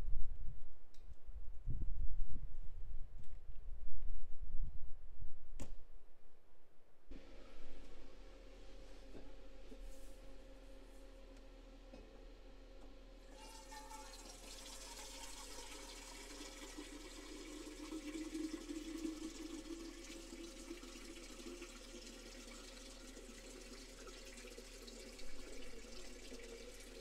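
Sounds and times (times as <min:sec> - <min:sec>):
water pouring into metal canister: 0:13.3 - 0:27.0.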